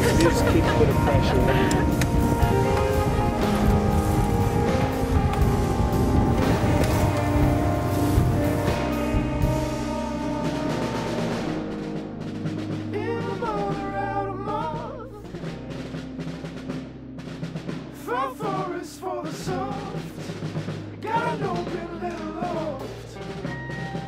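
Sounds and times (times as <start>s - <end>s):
person singing: 0.0s - 3.8s, 12.9s - 15.6s, 18.0s - 20.4s, 21.0s - 23.8s
sustained low bass notes: 0.0s - 23.8s.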